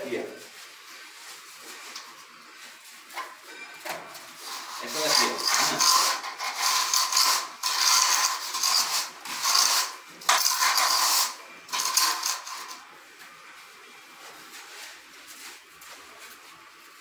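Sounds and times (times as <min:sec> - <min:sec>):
metal straightedge scraping mortar: 0:04.4 - 0:12.8.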